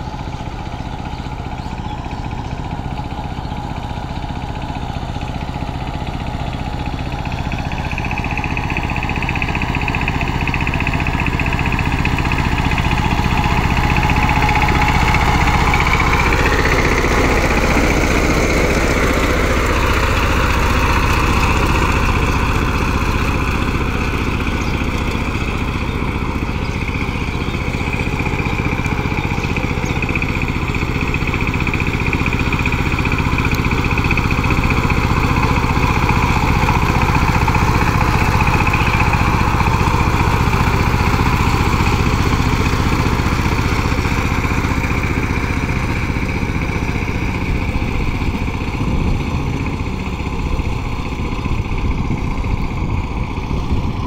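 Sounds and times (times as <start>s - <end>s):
diesel engine running under load: 0.0s - 54.0s
wheels churning through flooded paddy: 0.0s - 54.0s.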